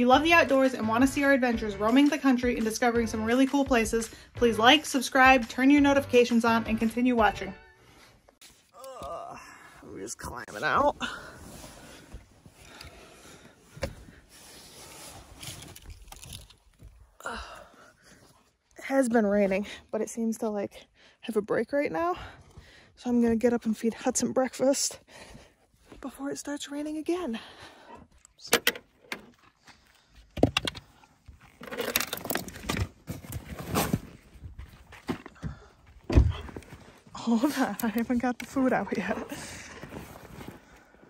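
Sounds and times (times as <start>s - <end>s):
rustling and handling noises: 10.4s - 17.2s, 28.9s - 35.4s, 36.4s - 41.0s.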